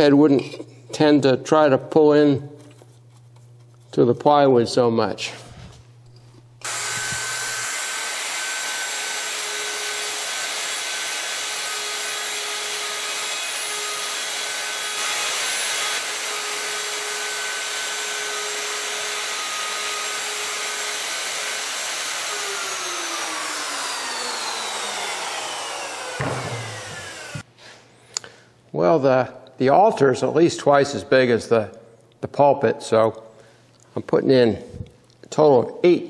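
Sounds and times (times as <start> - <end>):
router motor spinning down: 6.6 - 27.4
router cutting wood: 6.6 - 27.5.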